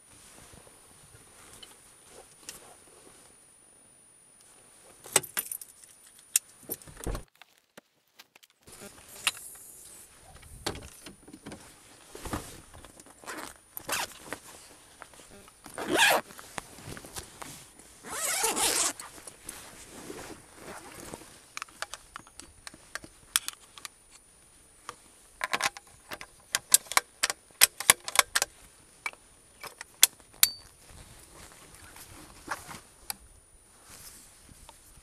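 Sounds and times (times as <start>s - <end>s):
gear rustling: 11.6s - 23.8s
sharp clicks and light knocks: 24.8s - 30.7s.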